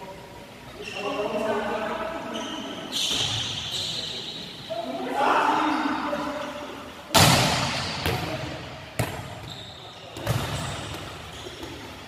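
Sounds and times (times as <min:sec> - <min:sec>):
volleyball smacks in echoing hall: 0:07.1 - 0:09.5, 0:10.1 - 0:11.9.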